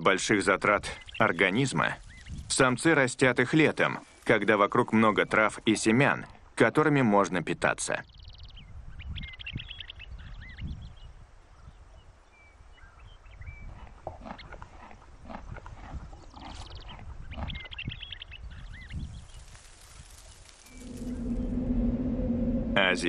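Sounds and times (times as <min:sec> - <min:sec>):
sheep chewing grass: 0:13.7 - 0:17.5
small bird chirping: 0:16.2 - 0:21.9
low rumble: 0:20.4 - 0:23.0.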